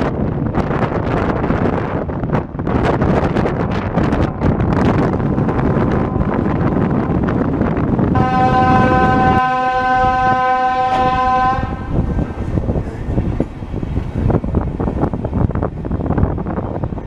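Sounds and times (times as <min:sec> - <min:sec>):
train rumbling and rattling: 0:00.0 - 0:17.0
wind on microphone: 0:00.0 - 0:17.0
train horn blast: 0:08.2 - 0:12.1.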